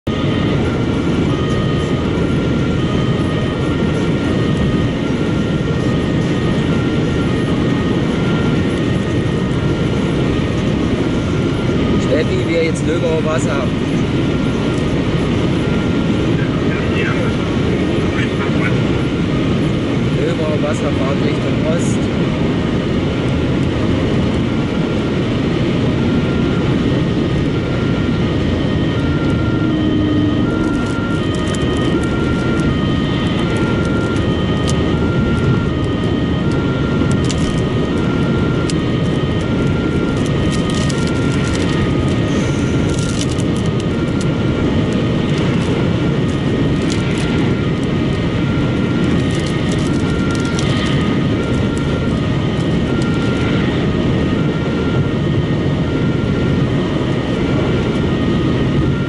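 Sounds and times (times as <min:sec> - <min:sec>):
wind noise: 0:00.0 - 0:59.0.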